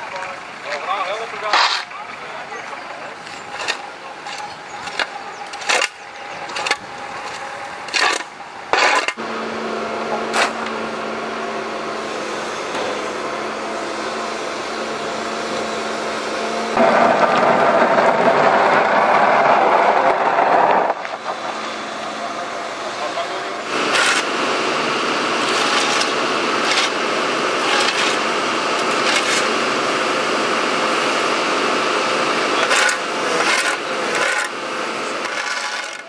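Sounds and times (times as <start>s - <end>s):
diesel excavator running: 0.0s - 36.0s
shovel scraping road: 1.4s - 2.0s, 3.1s - 9.3s, 10.1s - 10.9s, 23.1s - 30.4s, 32.0s - 36.0s
bucket scraping through bulbs: 23.7s - 29.6s, 32.6s - 36.0s.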